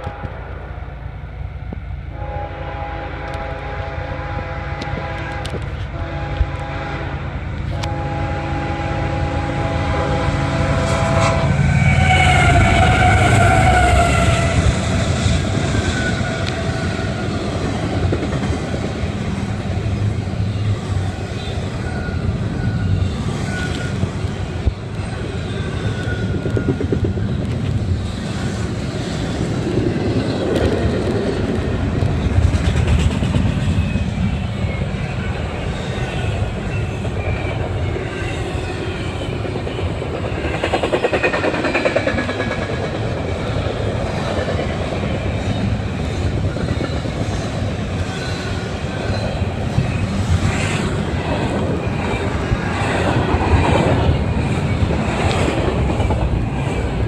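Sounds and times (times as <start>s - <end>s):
locomotive air horn: 0.0s - 0.9s, 2.1s - 15.0s
freight cars rumbling and clattering: 22.2s - 34.7s.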